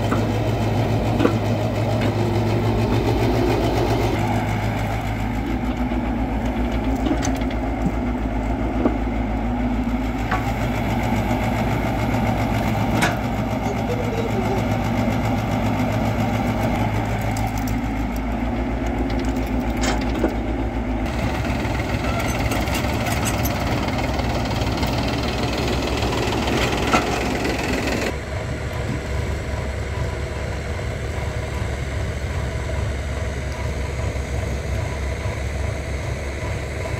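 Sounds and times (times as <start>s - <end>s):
excavator engine running: 0.0s - 36.9s
tractor idling: 0.0s - 36.9s.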